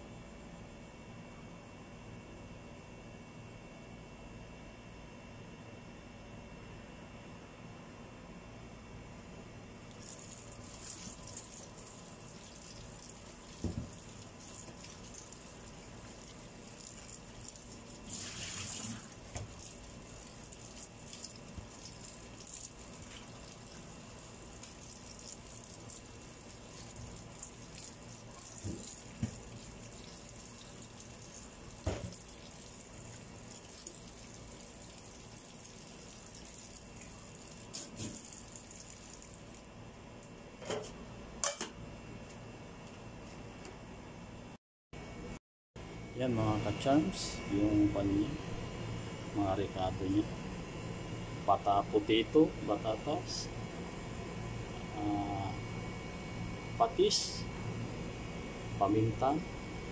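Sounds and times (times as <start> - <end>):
water splashing: 9.9 - 39.5
tap water running into pot: 9.9 - 39.6.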